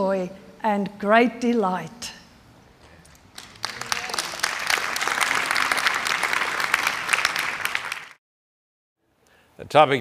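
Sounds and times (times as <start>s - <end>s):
audience applauding: 3.2s - 8.2s.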